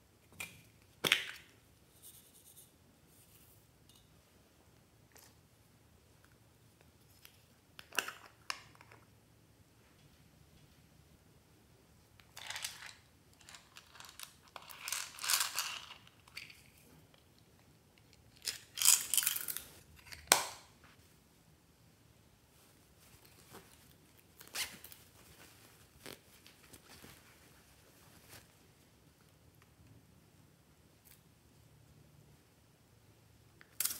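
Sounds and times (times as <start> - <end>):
plastic pieces rustling and rattling: 12.3 - 16.8, 18.3 - 20.4.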